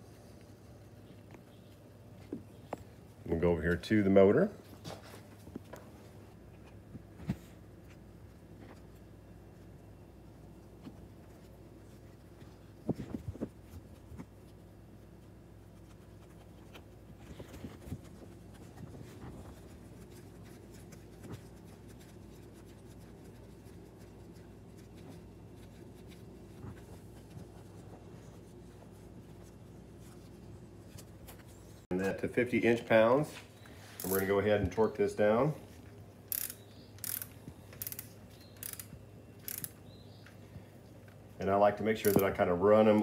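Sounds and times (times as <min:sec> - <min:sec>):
faint low hum: 0:00.0 - 0:43.0
hand tools clicking and knocking: 0:42.0 - 0:42.4.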